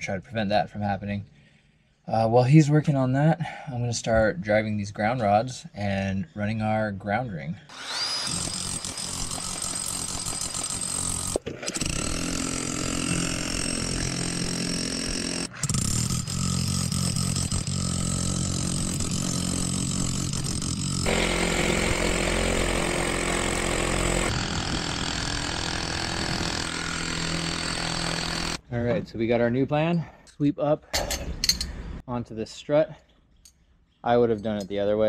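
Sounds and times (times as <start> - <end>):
powered hammer driving rod: 7.7 - 28.6.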